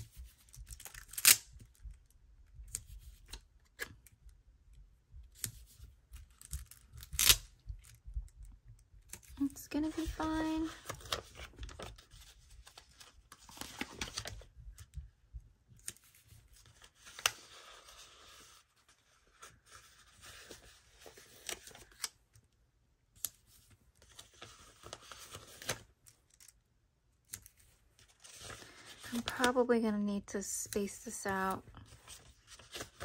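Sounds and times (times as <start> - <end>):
paper stickers rustling: 9.4 - 14.4.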